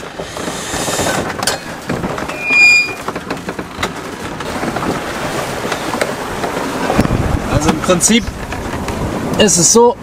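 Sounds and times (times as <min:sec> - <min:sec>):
wind: 0:00.0 - 0:10.0
water noise: 0:01.8 - 0:09.4
short high beep: 0:02.3 - 0:03.0.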